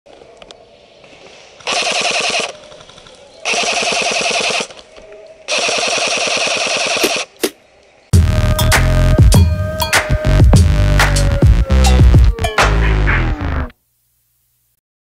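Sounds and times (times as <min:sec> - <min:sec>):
airsoft rifle automatic fire: 0:01.7 - 0:02.8, 0:03.4 - 0:04.8, 0:05.5 - 0:07.4.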